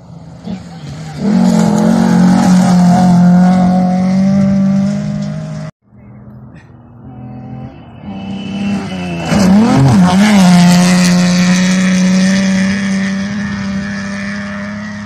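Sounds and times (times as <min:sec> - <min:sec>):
rally car engine racing past: 0:07.0 - 0:15.0.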